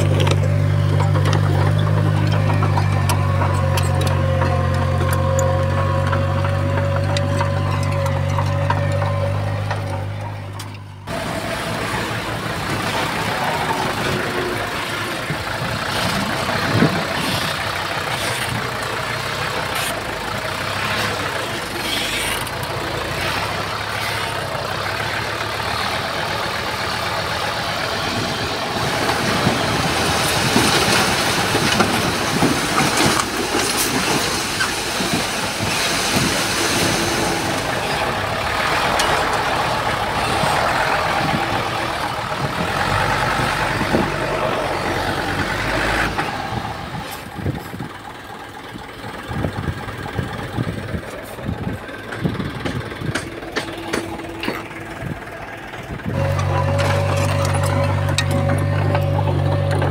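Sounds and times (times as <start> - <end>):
metal clanks and knocks: 0.0 - 11.0, 52.0 - 59.9
heavy diesel machinery running: 0.0 - 59.9.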